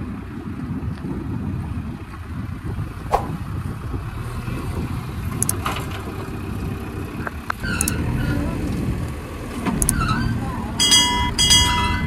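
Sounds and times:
sharp knocks: 3.1 - 3.5.

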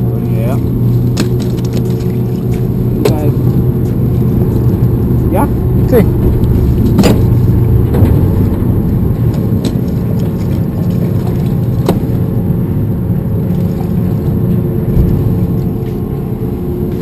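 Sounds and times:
boat engine rumbling: 0.0 - 17.0
sharp knocks: 6.1 - 10.0.

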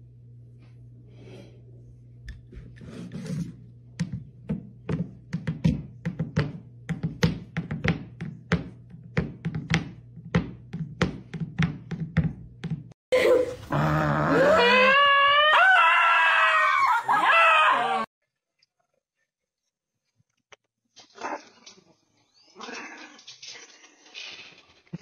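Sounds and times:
dog howling: 13.7 - 18.1.

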